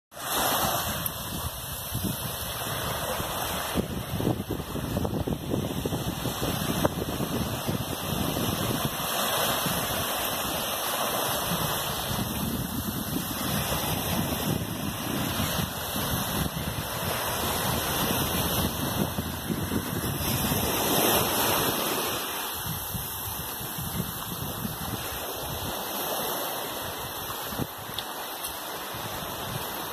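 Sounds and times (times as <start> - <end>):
small waves washing onto shore: 0.1 - 29.9
wind buffeting microphone: 0.4 - 29.9.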